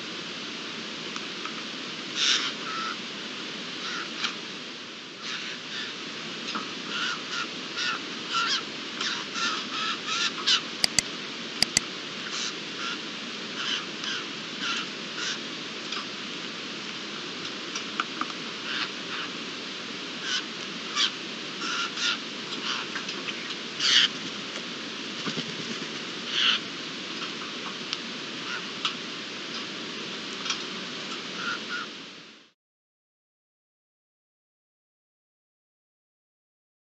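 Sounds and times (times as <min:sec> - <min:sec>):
sharp clicks: 0:10.8 - 0:11.8.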